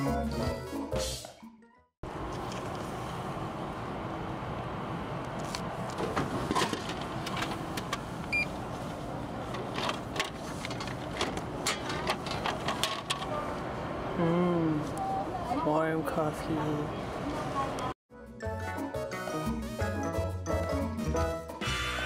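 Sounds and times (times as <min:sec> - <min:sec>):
traffic noise: 0:02.0 - 0:18.0
vending machine beep: 0:08.3 - 0:08.5.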